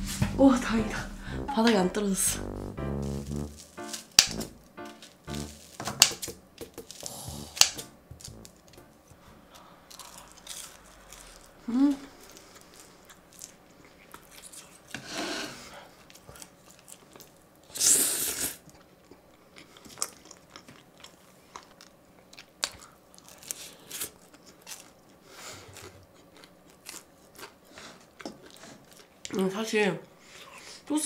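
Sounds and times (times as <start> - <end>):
person chewing and biting: 5.3 - 8.7, 9.8 - 14.7.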